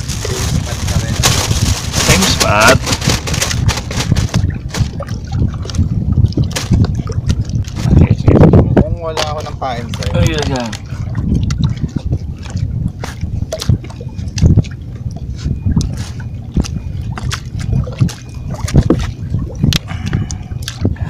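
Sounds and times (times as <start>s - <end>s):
sea water splashing on rocks: 0.0s - 8.0s
low rumble: 0.0s - 21.0s.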